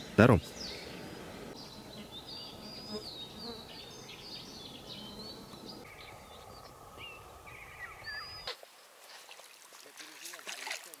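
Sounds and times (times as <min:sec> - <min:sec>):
songbirds singing: 0:00.0 - 0:08.6
insects buzzing: 0:00.0 - 0:09.0.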